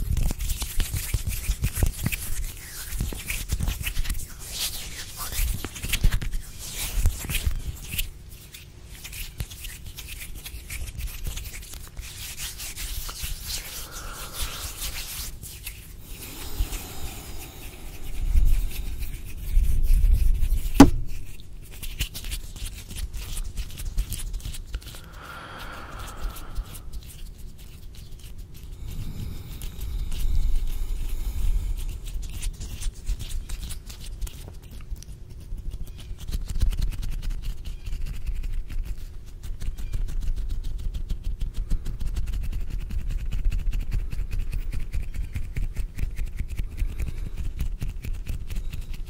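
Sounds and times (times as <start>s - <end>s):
hands rubbing and crackling: 0.0s - 49.0s
low rumble of hand movement: 11.7s - 33.2s.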